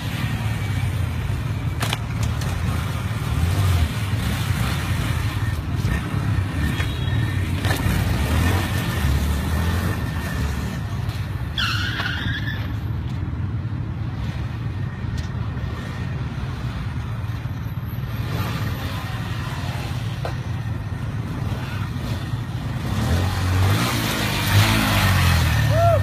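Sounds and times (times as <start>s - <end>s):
high squeal: 11.5s - 12.9s.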